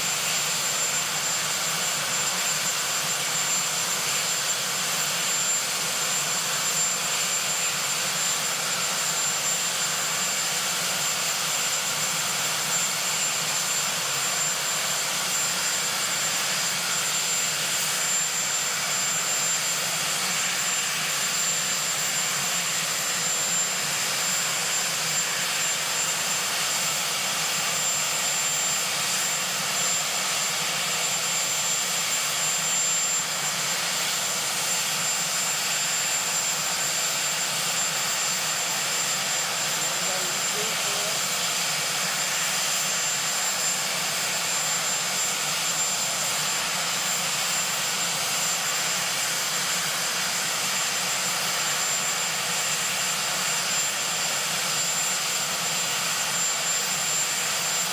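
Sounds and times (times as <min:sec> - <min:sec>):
helicopter engines roaring: 0:00.0 - 0:57.9
high turbine whine: 0:00.0 - 0:57.9.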